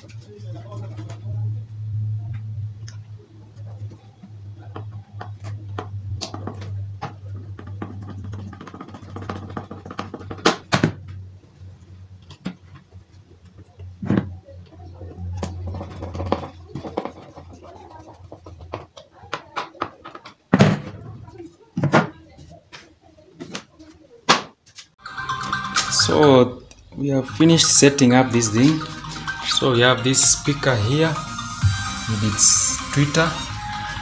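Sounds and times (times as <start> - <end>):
steady low hum: 0.0 - 9.9
clicks knocks and scrapes: 15.4 - 21.2.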